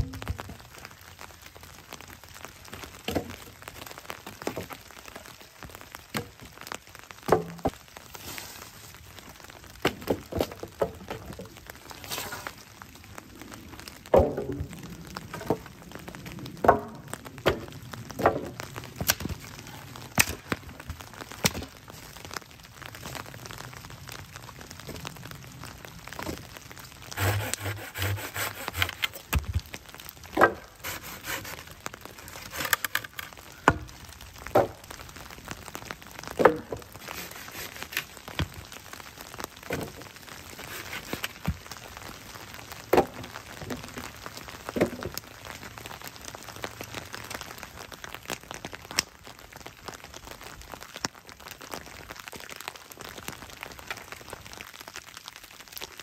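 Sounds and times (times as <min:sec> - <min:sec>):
firewood thuds: 0:07.3 - 0:07.8, 0:14.1 - 0:14.7, 0:16.6 - 0:19.4, 0:30.3 - 0:30.6, 0:34.5 - 0:34.8
wooden branches cracking: 0:14.0 - 0:22.0, 0:27.1 - 0:34.8.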